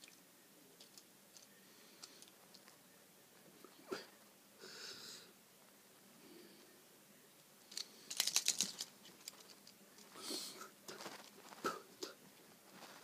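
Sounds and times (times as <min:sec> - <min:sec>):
plastic toy clicks and clatter: 0:07.7 - 0:09.8.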